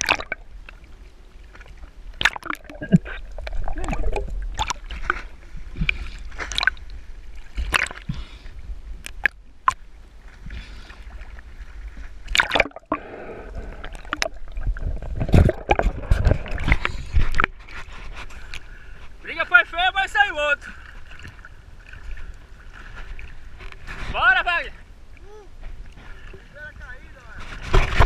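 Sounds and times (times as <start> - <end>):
seawater sloshing and splashing: 0.0 - 24.4, 25.6 - 28.0.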